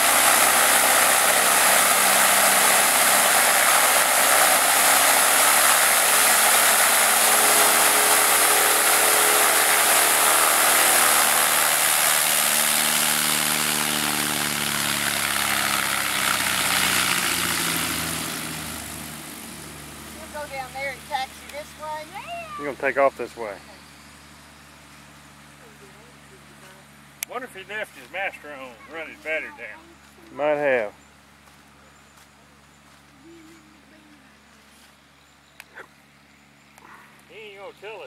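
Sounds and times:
airplane engine and propeller: 0:00.0 - 0:30.2.

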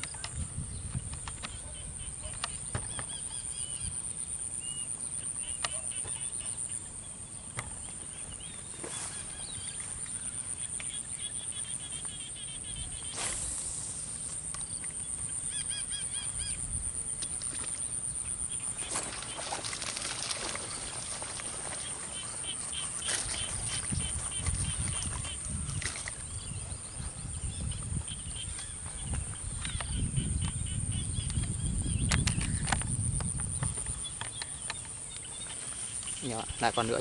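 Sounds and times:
wind rumble on microphone: 0:00.0 - 0:04.0, 0:23.1 - 0:35.0
small birds chirping: 0:00.0 - 0:37.0
high-pitched insect drone: 0:13.0 - 0:19.2
burst of noise: 0:13.1 - 0:14.5.

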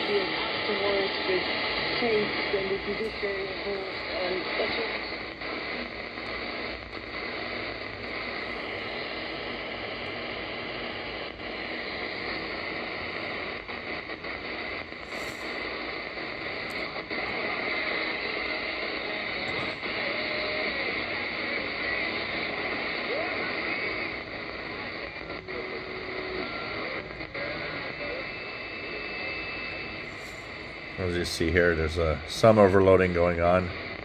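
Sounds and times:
radio static hiss: 0:00.0 - 0:34.0
faint steady whistles: 0:16.9 - 0:31.0.

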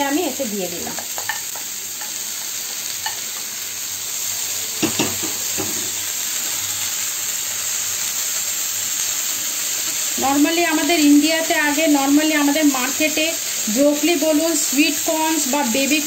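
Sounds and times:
vegetables sizzling in a frying pan: 0:00.0 - 0:16.0
spatula knocking against pan: 0:04.8 - 0:05.9.

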